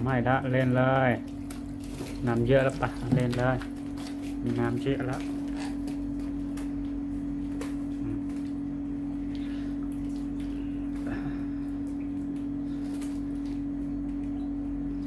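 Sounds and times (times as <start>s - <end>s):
water splashes: 0.0s - 6.1s, 9.3s - 14.3s
steady low hum: 0.0s - 15.0s.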